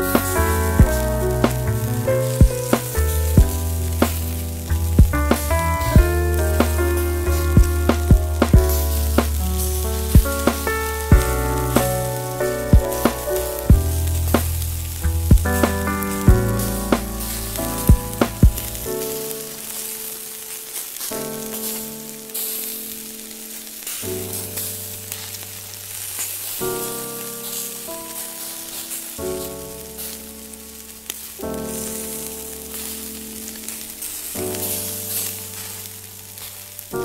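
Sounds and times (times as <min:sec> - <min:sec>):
slow background music: 0:00.0 - 0:20.5
meat sizzling on a grill: 0:00.0 - 0:37.0.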